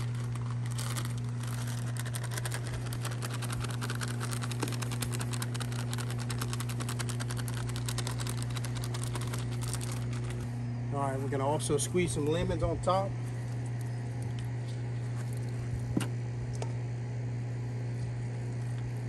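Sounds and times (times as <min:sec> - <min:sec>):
seasoning shaken from bag: 0:00.0 - 0:10.4
steady low hum: 0:00.0 - 0:19.0.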